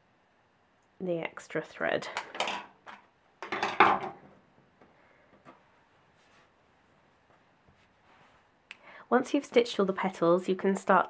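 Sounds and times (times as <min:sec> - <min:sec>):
scissors clattering on wooden table: 0:02.2 - 0:04.2
soft handling of felt: 0:05.2 - 0:08.7.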